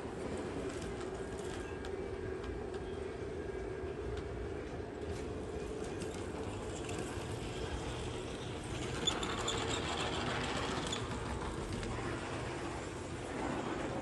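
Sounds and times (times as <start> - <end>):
model train wheels clattering on rail: 5.1 - 14.0.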